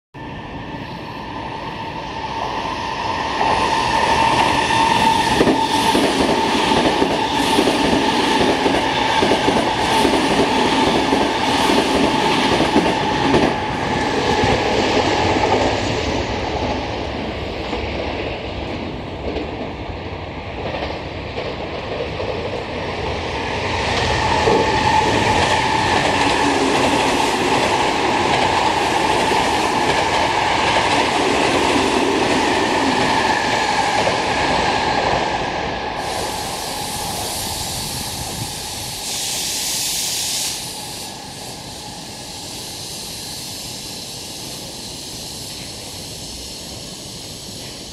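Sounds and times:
train wheels clattering over rails: 3.4s - 17.0s, 20.6s - 35.4s.

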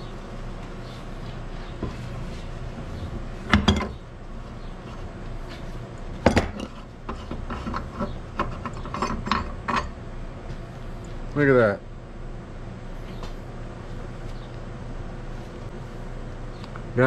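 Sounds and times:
steady low hum: 0.0s - 17.0s
metal tools clanking: 6.2s - 10.0s.

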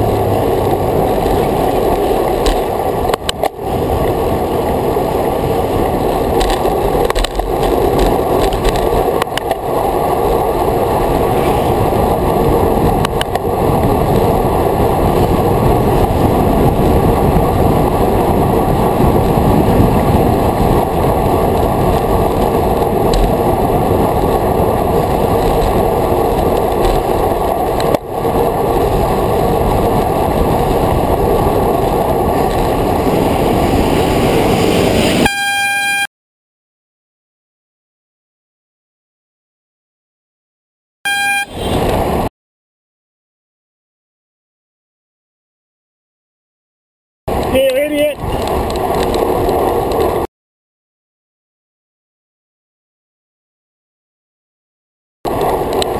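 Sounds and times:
wind rushing over microphone: 0.0s - 35.3s, 41.1s - 42.3s, 47.3s - 50.3s, 55.3s - 55.9s
short pitched tone: 35.2s - 36.1s, 41.1s - 41.8s.

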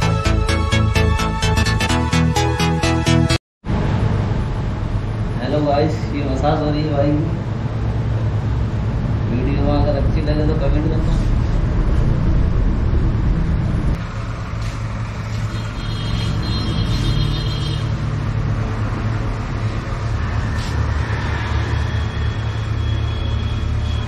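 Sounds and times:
steady low rumble: 3.6s - 15.5s.

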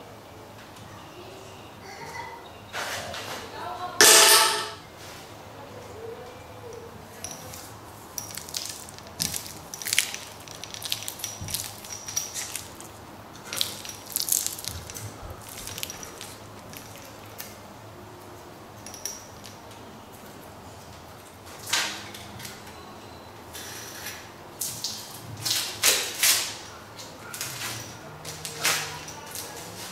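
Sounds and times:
plastic wrapping crinkling: 8.2s - 17.6s.

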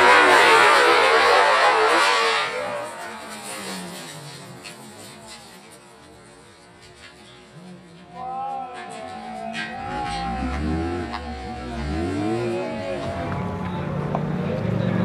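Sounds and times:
car engine at high revs: 0.0s - 5.8s, 9.9s - 15.0s
tyre noise: 0.0s - 15.0s.

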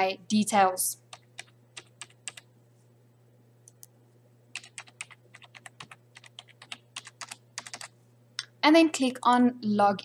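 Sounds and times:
computer keyboard typing: 1.1s - 2.5s, 4.5s - 7.9s.

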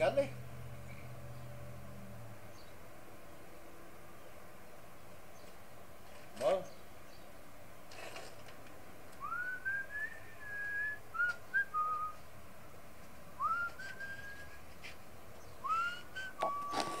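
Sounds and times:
person whistling a slow tune: 9.2s - 12.2s, 13.4s - 14.6s, 15.6s - 17.0s.

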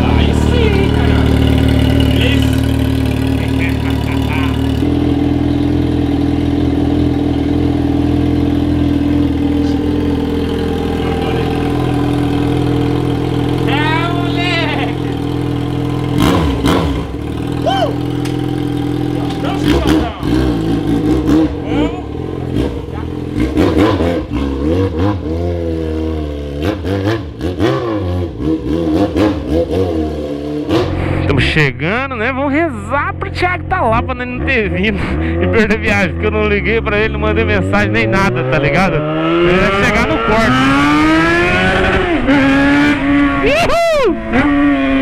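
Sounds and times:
motorcycle engine idling: 0.0s - 24.5s.

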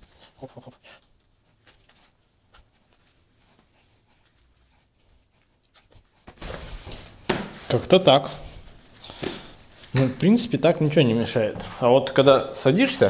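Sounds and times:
fabric rustling: 5.7s - 11.5s.

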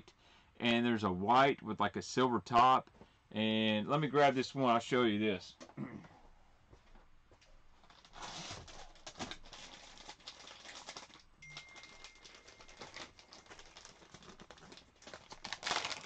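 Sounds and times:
plastic packages crinkling: 7.8s - 16.0s.

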